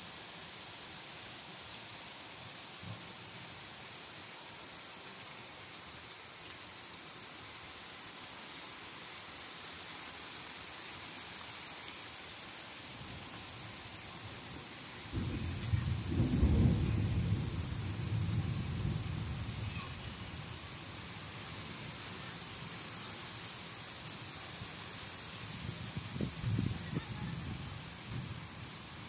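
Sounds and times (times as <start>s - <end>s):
rain falling: 0.0s - 29.0s
low rumble of thunder: 15.1s - 20.4s, 26.0s - 28.4s.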